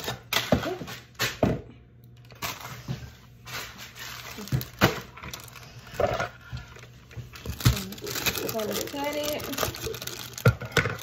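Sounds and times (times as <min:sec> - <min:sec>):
plastic pouch crinkling: 0:03.9 - 0:06.0, 0:07.3 - 0:11.0.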